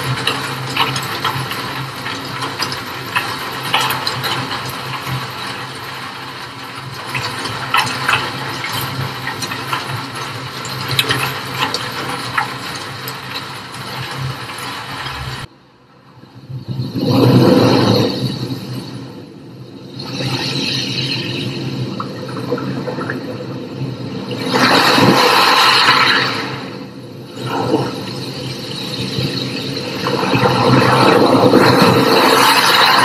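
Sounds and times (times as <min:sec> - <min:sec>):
rain pattering on wet street: 0:00.0 - 0:15.5
sea wave washing in: 0:24.0 - 0:28.4, 0:29.0 - 0:33.0.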